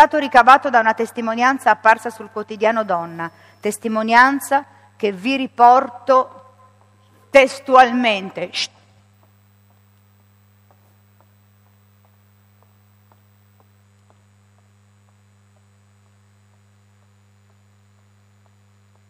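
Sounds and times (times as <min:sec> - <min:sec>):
low electrical hum: 0:00.0 - 0:19.0
faint ticks: 0:09.2 - 0:19.0.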